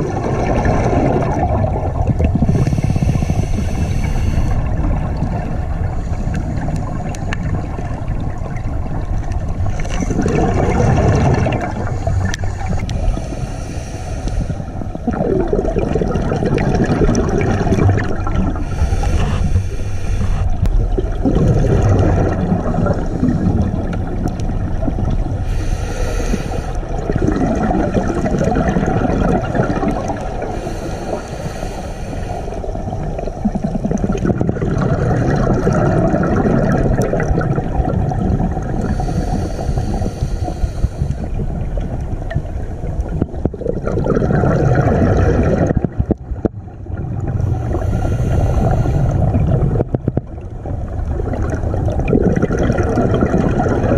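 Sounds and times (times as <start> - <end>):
exhaled bubbles rushing: 0.0 - 25.6, 26.5 - 31.2, 32.5 - 53.9
diver regulator inhalation hiss: 2.3 - 4.8, 5.8 - 7.7, 11.6 - 15.0, 18.5 - 20.6, 25.4 - 27.0, 30.0 - 33.0, 38.8 - 41.6, 47.4 - 49.3.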